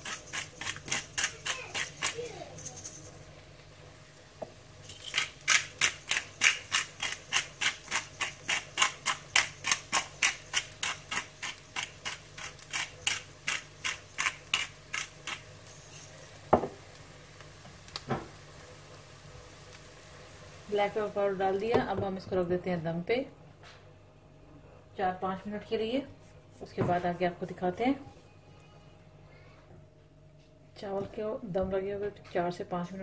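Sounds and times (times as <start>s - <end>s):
pepper grinder cracking peppercorns: 0.0s - 3.0s, 4.8s - 16.0s.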